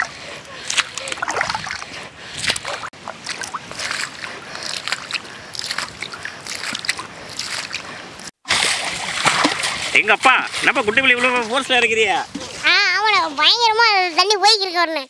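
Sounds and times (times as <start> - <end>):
water scooping and splashing: 0.0 - 11.5.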